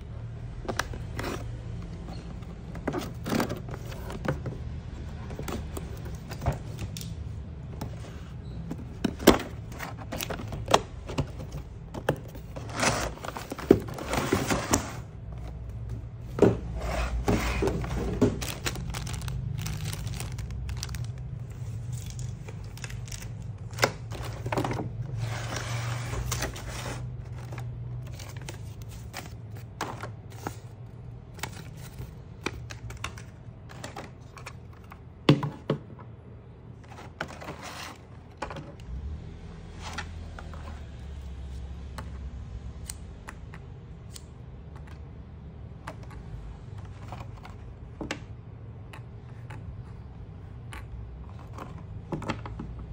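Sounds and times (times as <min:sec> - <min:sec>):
plastic packaging crinkling: 0:18.0 - 0:24.6.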